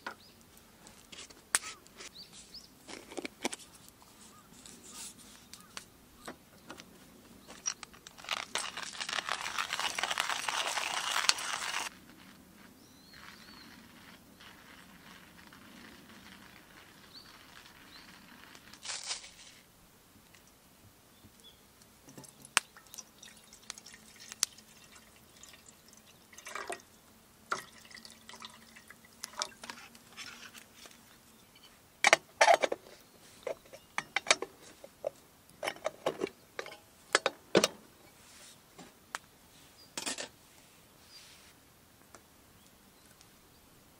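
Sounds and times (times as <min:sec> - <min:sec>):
water pouring: 0:22.4 - 0:26.9, 0:27.5 - 0:29.8.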